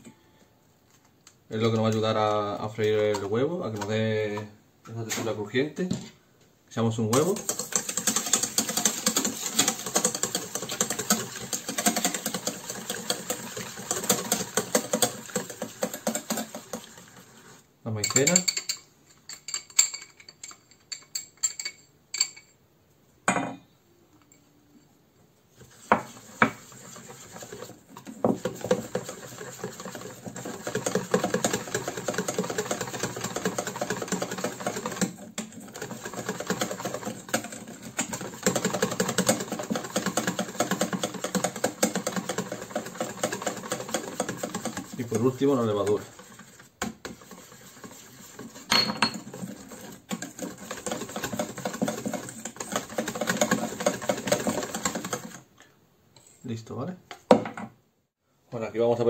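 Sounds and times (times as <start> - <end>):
whisk beating in metal bowl: 1.5 - 4.5, 6.8 - 18.8, 25.6 - 55.5.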